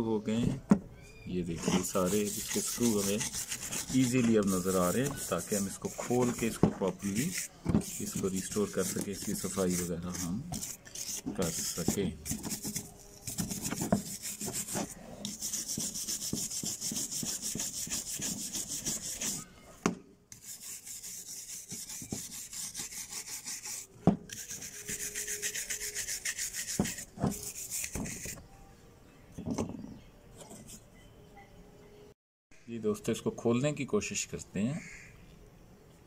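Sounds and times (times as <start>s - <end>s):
wooden stick scraping metal: 1.4s - 19.5s, 20.3s - 28.4s.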